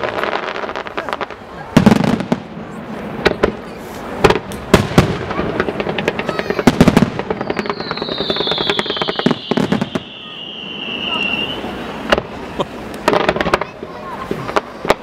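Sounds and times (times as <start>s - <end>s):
firework crackling: 0.0s - 15.0s
high falling whistle: 7.4s - 12.1s.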